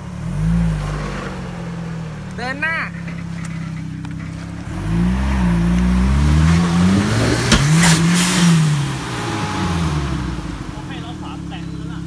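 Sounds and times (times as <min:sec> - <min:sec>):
truck engine idling and revving: 0:00.0 - 0:12.0
sharp knock: 0:07.2 - 0:08.3.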